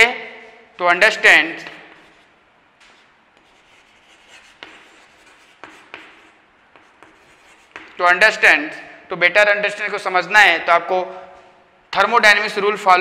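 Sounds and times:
chalk scratching on chalkboard: 1.6s - 8.0s.

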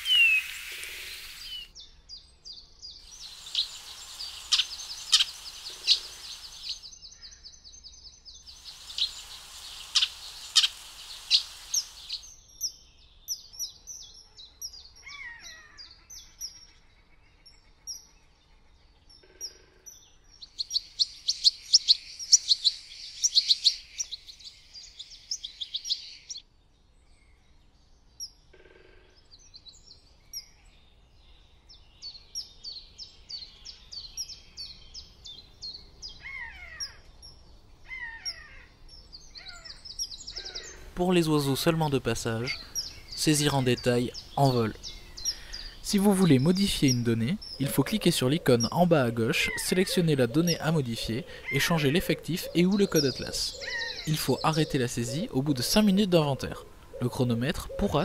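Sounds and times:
falling whistles: 0.0s - 1.7s
songbirds singing and chirping: 0.0s - 28.5s, 29.1s - 58.0s.

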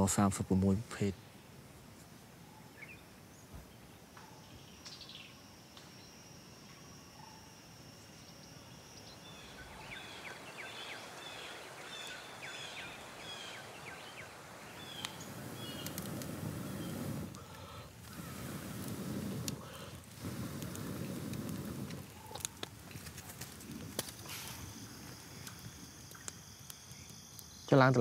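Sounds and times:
outdoor hiss: 0.0s - 28.0s
high insect-like tone: 4.0s - 17.0s, 21.9s - 28.0s.

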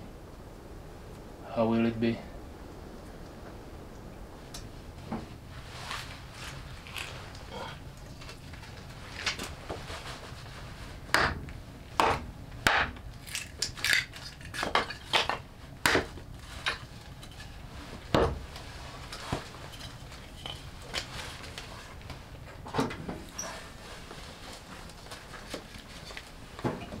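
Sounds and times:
hatchet chopping wood: 11.1s - 11.4s, 12.0s - 13.0s, 14.6s - 16.1s.

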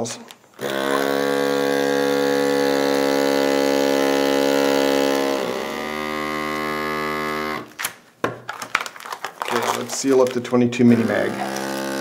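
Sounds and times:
vacuum sealer motor hum: 0.6s - 7.8s, 10.9s - 12.0s.

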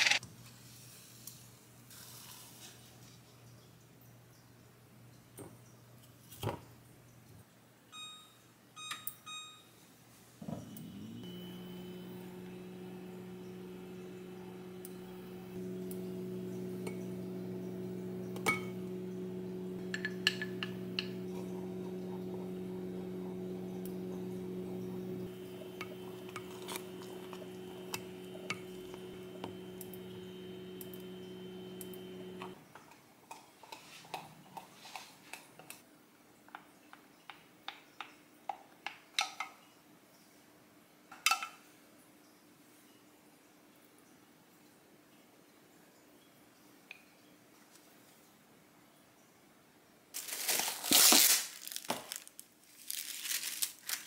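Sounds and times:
kitchen appliance humming: 10.4s - 32.7s.

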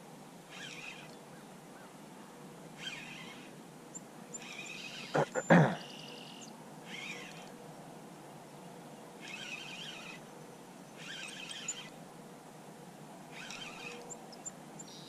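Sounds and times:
bird chirping: 13.4s - 15.0s.

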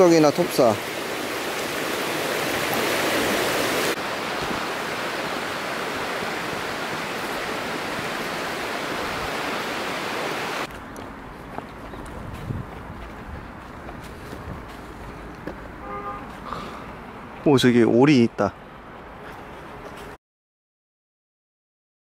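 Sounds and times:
mountain stream rushing: 0.0s - 10.7s.

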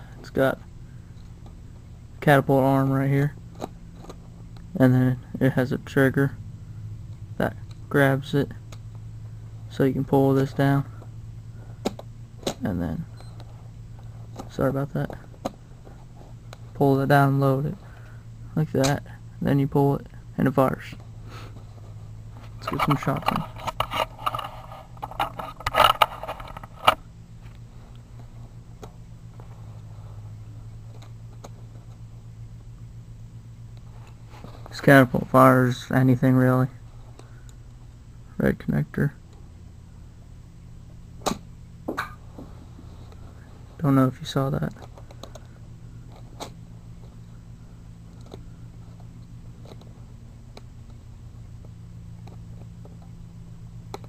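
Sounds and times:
steady low hum: 0.0s - 54.0s
plastic parts clicking and rattling: 22.6s - 27.0s.

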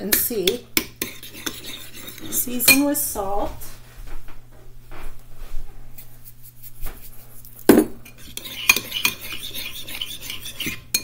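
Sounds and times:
metal spoon scraping ceramic bowl: 0.1s - 3.0s, 8.0s - 11.0s.

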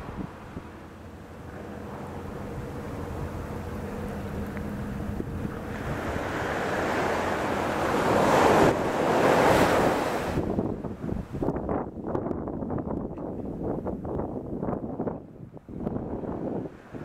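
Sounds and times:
waves washing up a beach: 0.0s - 11.5s, 15.7s - 17.0s.

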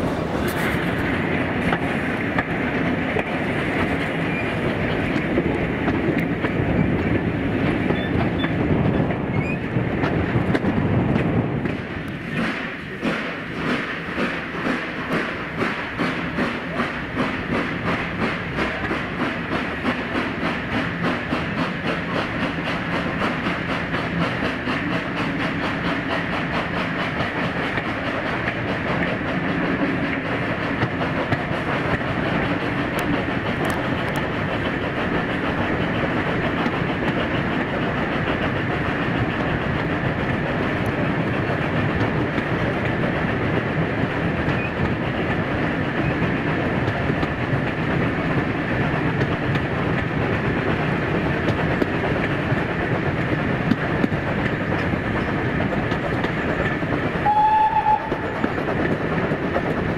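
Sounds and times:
steam train exhaust beats: 0.0s - 59.9s.

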